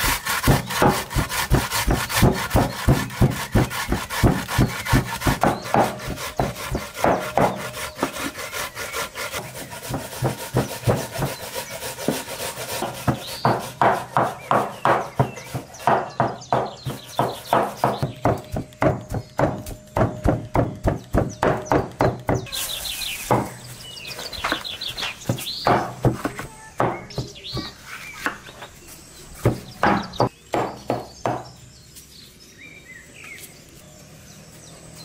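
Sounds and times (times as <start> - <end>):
knife chopping on wooden board: 0.0 - 8.3, 12.1 - 22.4
birds chirping: 0.0 - 35.0.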